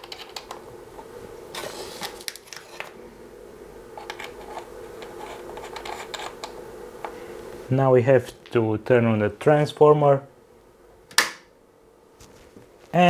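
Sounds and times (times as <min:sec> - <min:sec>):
wires rustling: 0:00.0 - 0:03.0, 0:03.8 - 0:07.7
faint steady hum: 0:00.0 - 0:13.0.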